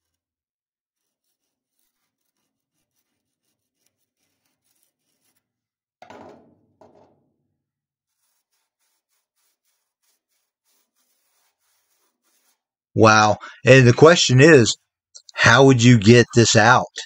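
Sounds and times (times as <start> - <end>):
tool scratching hardened sand: 1.0 - 5.6, 8.1 - 16.9.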